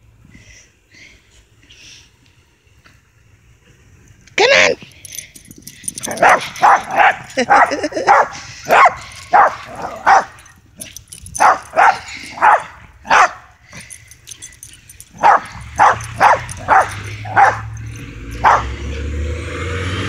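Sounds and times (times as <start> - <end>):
vehicle engine rumble: 0.0 - 20.0
small dog barking: 6.1 - 10.4, 11.4 - 13.5, 15.1 - 17.8, 18.4 - 18.8.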